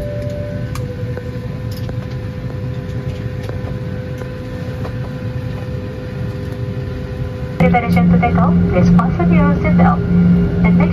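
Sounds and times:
cabin ventilation hum: 0.0 - 10.9
steady mid-pitched tone: 7.6 - 10.9.

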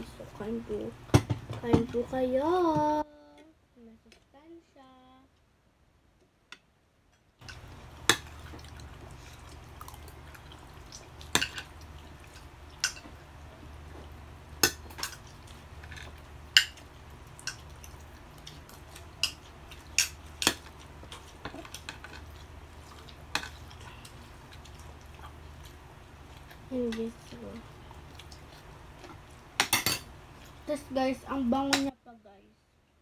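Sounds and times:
low steady hum: 0.0 - 33.0
cutlery clinking on plates: 29.6 - 30.1.

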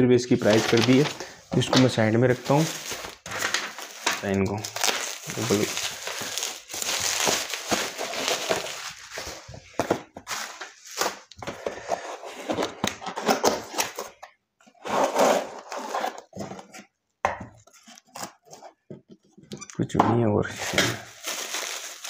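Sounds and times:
bubble wrap crinkling: 0.4 - 11.4, 20.6 - 22.0
cardboard box handled and opened: 0.5 - 14.1, 17.6 - 19.4.

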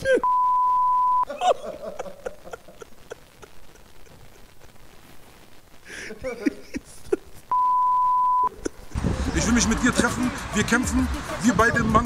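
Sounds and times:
censor beep: 0.2 - 1.3, 7.5 - 8.5
man laughing softly: 1.3 - 4.9, 5.8 - 7.5, 8.5 - 9.4.

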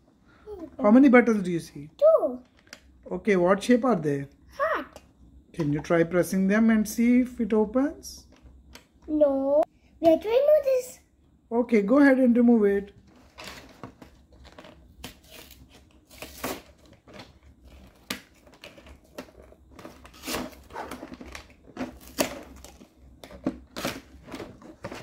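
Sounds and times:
plastic crinkling and tearing: 13.2 - 25.0.

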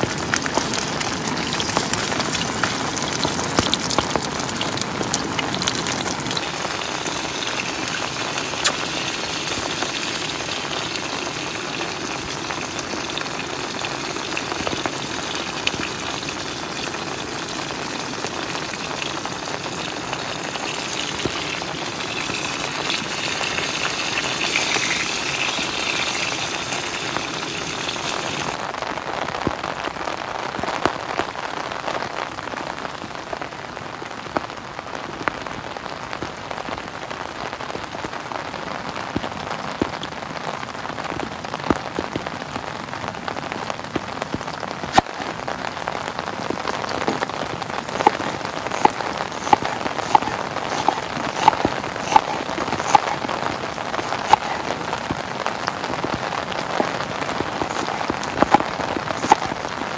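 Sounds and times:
steady rain falling: 0.0 - 59.9
knife chopping on wooden board: 48.8 - 53.2, 54.3 - 54.6.

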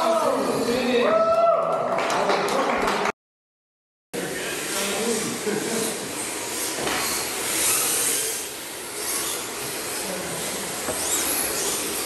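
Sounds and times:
electric motors whining: 4.2 - 12.0.

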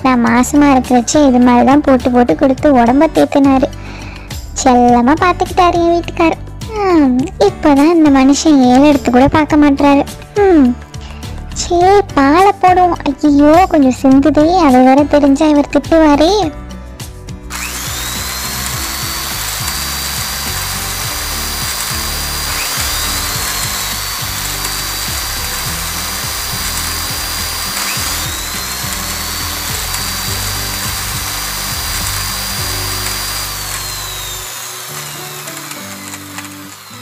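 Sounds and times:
small mixer motor whining: 17.5 - 37.0.

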